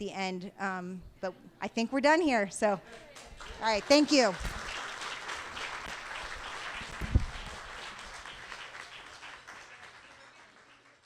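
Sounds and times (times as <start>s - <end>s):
small audience applauding: 2.9s - 11.0s.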